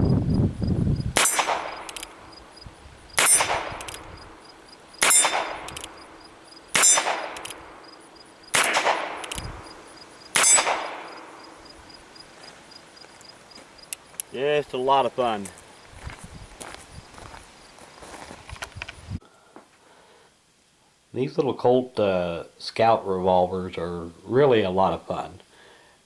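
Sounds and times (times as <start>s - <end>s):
steel target ringing clang: 1.2s - 1.9s, 3.2s - 3.7s, 5.0s - 5.7s, 6.8s - 7.4s, 10.4s - 11.4s
revolver shots: 8.5s - 9.6s, 10.3s - 11.4s.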